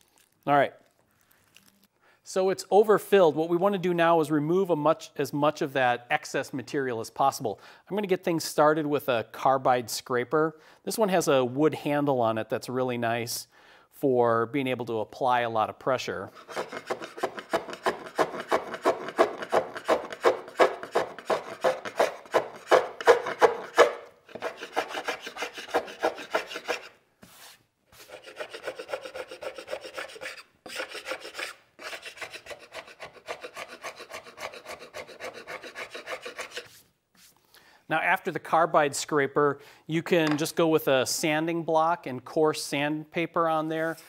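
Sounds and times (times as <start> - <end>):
scraper scraping wood: 16.3 - 37.3.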